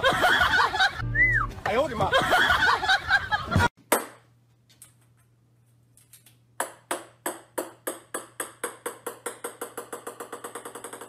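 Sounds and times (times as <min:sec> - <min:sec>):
small ball bouncing on wooden floor: 0:06.6 - 0:11.0.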